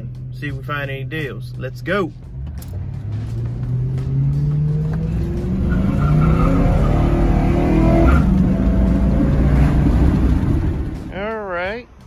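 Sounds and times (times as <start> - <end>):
road rumble: 0.0 - 12.0
vehicle engine accelerating: 2.2 - 11.2.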